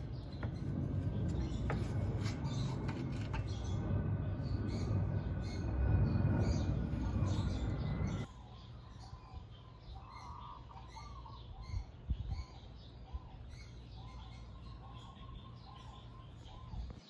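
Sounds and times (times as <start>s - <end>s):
birds chirping: 0.0s - 17.0s
metal scraping creak: 0.2s - 8.3s.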